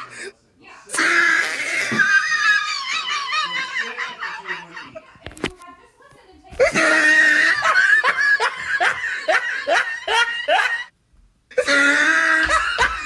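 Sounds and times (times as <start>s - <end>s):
person laughing hard: 6.6s - 10.9s, 11.6s - 13.0s.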